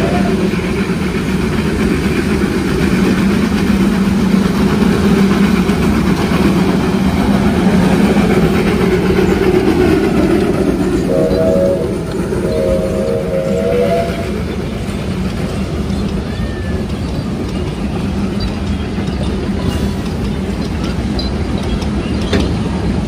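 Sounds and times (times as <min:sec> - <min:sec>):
steam locomotive chime whistle: 0:00.0 - 0:00.6, 0:10.3 - 0:14.5
carriage wheels rumbling on track: 0:00.0 - 0:23.0.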